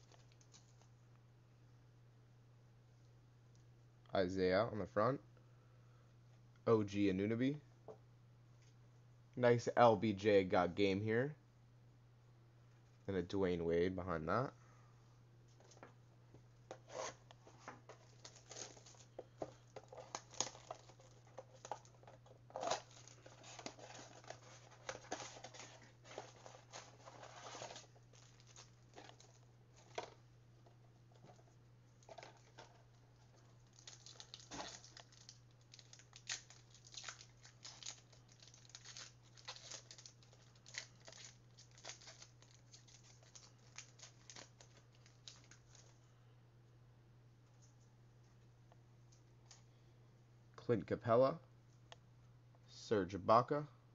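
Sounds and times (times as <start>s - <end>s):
card wrappers tearing and crinkling: 16.8s - 30.2s, 32.0s - 45.9s.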